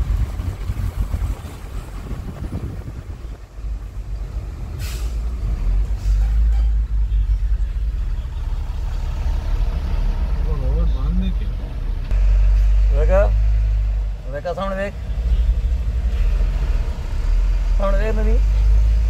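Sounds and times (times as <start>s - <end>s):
car road noise on wet road: 0.0s - 19.0s
short tyre hiss: 4.7s - 6.7s.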